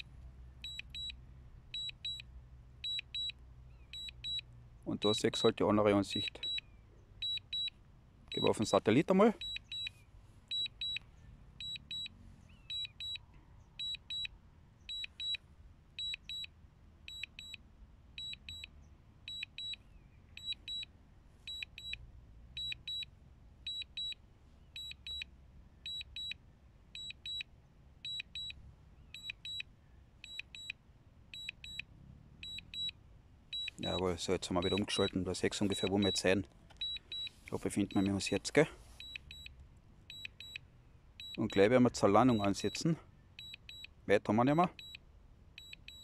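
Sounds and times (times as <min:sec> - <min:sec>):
remote controller beeping: 0:00.6 - 0:01.1, 0:01.8 - 0:04.4, 0:06.1 - 0:08.8, 0:09.4 - 0:11.0, 0:11.6 - 0:12.1, 0:12.7 - 0:13.2, 0:13.8 - 0:14.3, 0:14.9 - 0:15.4, 0:16.0 - 0:16.5, 0:20.4 - 0:20.8, 0:27.0 - 0:27.4, 0:29.2 - 0:29.6, 0:30.2 - 0:30.8, 0:31.4 - 0:31.8, 0:32.4 - 0:34.0, 0:34.6 - 0:40.6, 0:41.2 - 0:41.6, 0:42.2 - 0:43.9, 0:45.6 - 0:46.0.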